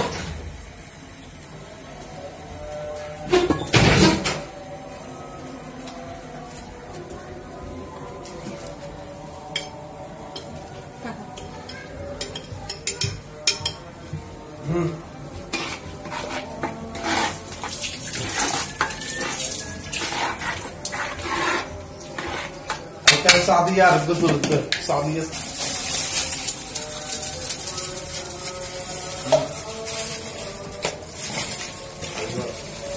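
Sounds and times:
spoon scraping metal pot: 0:15.5 - 0:23.4.

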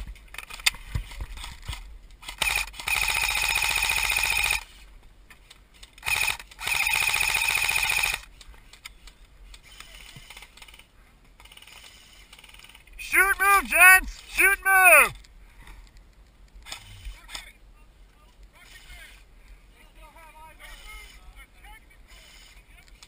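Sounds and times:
airsoft rifle full-auto bursts: 0:02.2 - 0:04.8, 0:06.0 - 0:08.3, 0:11.4 - 0:14.0.

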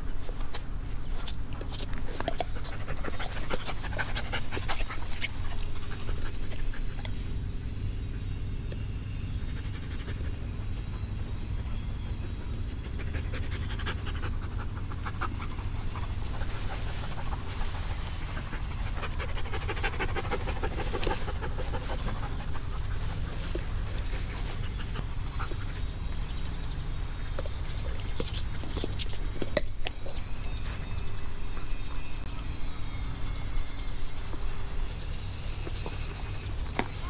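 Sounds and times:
dog panting: 0:02.2 - 0:07.2, 0:09.4 - 0:29.2.

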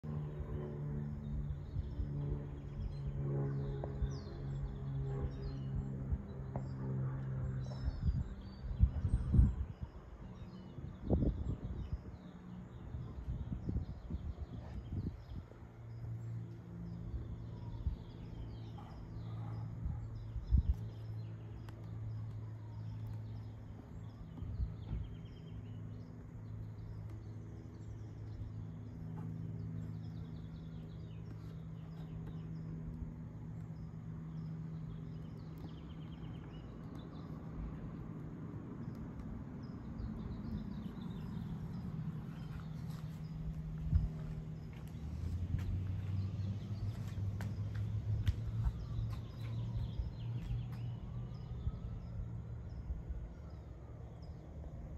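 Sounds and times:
steady low hum: 0:00.0 - 0:54.9
small birds chirping: 0:00.1 - 0:54.9.

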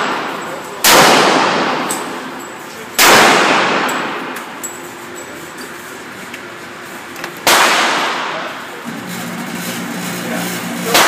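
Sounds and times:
loud gunshot with reverberation: 0:00.0 - 0:01.9, 0:03.0 - 0:04.3, 0:07.4 - 0:08.5.

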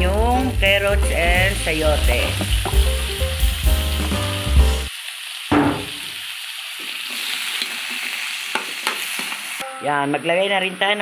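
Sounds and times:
background music: 0:00.0 - 0:04.9
vegetables sizzling in oil: 0:00.0 - 0:11.0.

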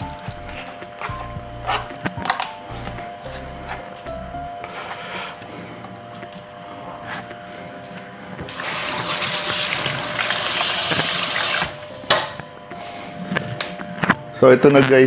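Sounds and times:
kitchen tap running: 0:08.4 - 0:12.3.

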